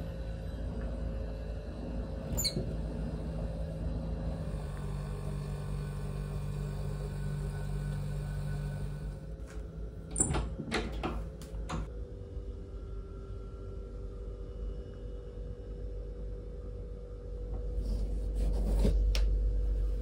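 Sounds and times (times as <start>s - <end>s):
low hum: 0.0s - 20.0s
wooden door opening: 10.1s - 11.9s.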